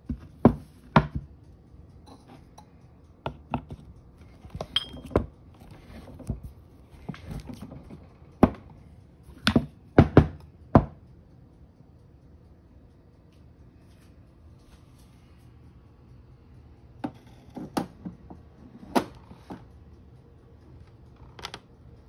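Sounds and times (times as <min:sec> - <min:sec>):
metal clinks and knocks: 0:03.7 - 0:06.4.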